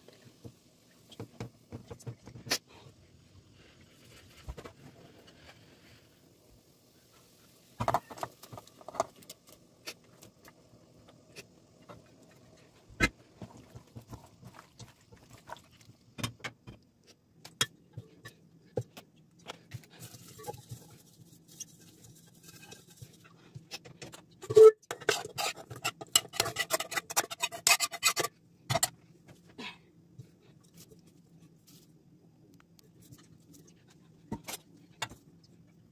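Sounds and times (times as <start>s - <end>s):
spoon scraping a pan: 20.0s - 23.3s, 24.4s - 28.9s.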